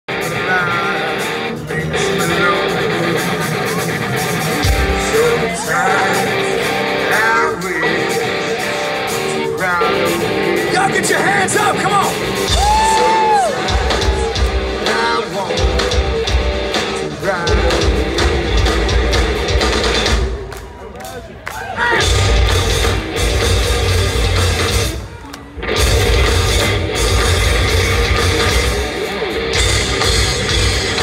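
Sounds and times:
person singing: 0.1 - 19.7
rock band playing live: 0.1 - 31.0.

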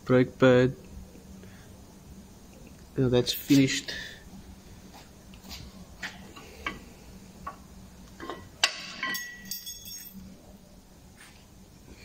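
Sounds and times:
brake disc clanking and ringing: 8.6 - 10.1.

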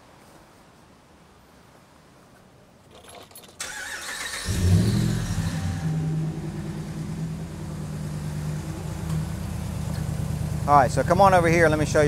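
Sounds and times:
car engine revving and idling: 4.3 - 12.0.

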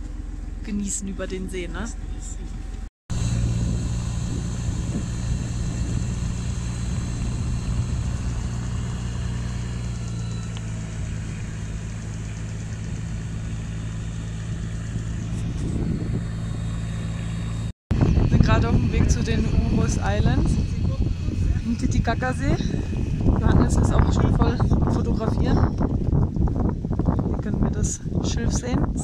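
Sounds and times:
boat engine humming: 0.0 - 28.7
hiss of wind and water: 3.2 - 15.2.

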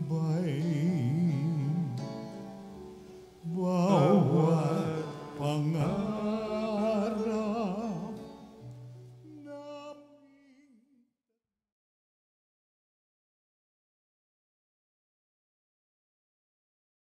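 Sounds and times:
sustained instrumental accompaniment: 0.0 - 9.7
people singing a hymn: 3.4 - 8.5.

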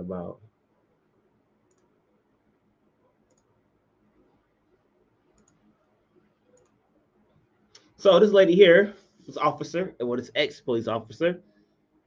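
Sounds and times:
computer mouse clicks: 1.6 - 2.0, 3.0 - 3.6, 5.3 - 5.8, 6.5 - 6.8.

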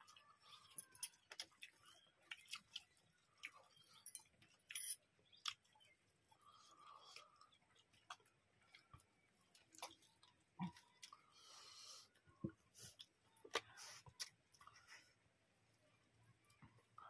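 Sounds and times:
chewing: 0.0 - 15.1
small clicks and wet smacks: 1.1 - 4.6, 5.2 - 6.0.

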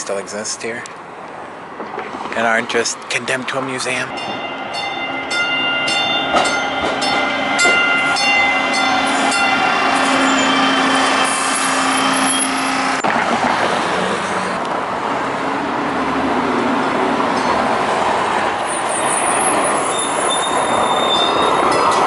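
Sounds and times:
street traffic: 0.0 - 22.0
train hum: 0.9 - 22.0
train bell ringing: 3.8 - 13.1, 17.4 - 17.7, 19.3 - 22.0.

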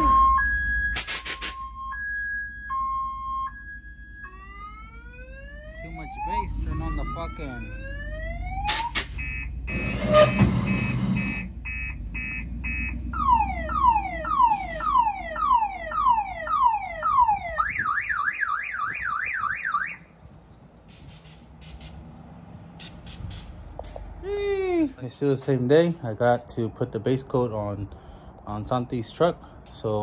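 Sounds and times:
car alarm siren: 0.0 - 20.1.

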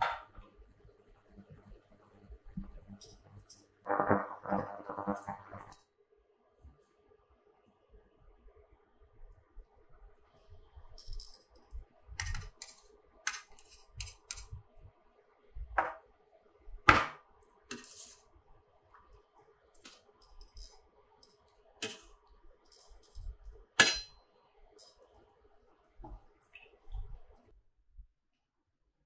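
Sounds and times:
utensils clanking on metal pot: 23.8 - 24.2.

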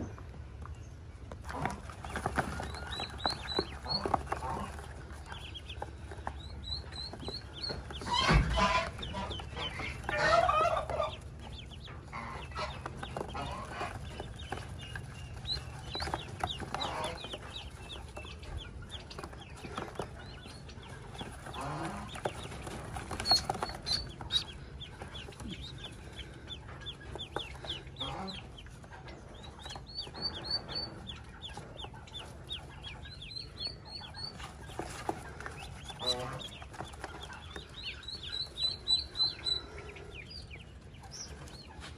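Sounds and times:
ducklings peeping: 0.0 - 41.9.

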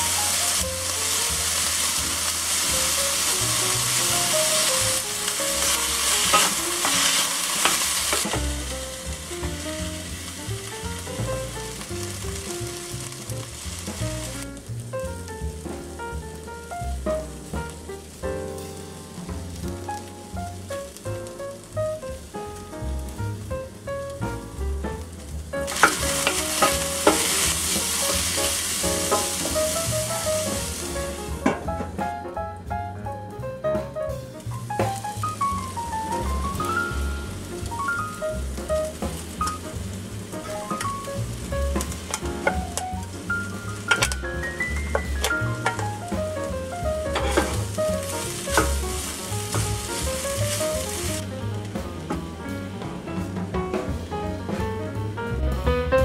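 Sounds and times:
vegetables sizzling in oil: 0.0 - 15.3, 25.3 - 31.6, 34.4 - 51.8
wooden spoon scraping a pan: 1.4 - 9.2, 25.7 - 31.6, 47.1 - 51.3
light background music: 4.3 - 25.0, 25.6 - 56.0
wooden spoon knocking pan: 5.6 - 8.7, 25.7 - 29.8, 30.4 - 32.0, 39.0 - 51.0.

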